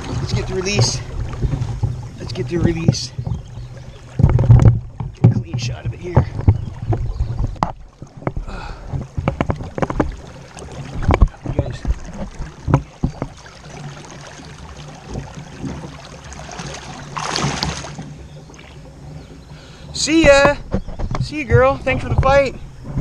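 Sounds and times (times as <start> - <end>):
knocks against kayak hull: 0.0 - 13.5, 20.2 - 23.0
water sloshing: 0.0 - 23.0
short splash: 9.6 - 18.8.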